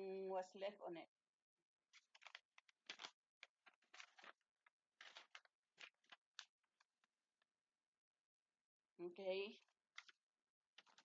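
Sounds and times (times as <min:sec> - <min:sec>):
paper rustling and crinkling: 0:01.9 - 0:07.2, 0:09.6 - 0:11.0.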